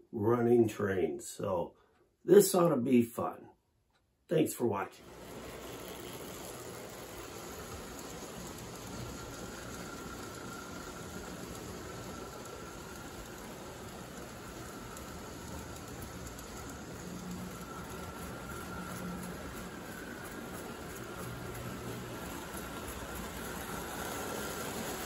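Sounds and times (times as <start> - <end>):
faint steady whine: 4.3 - 25.0
toy train wheels rumbling on rails: 5.0 - 25.0.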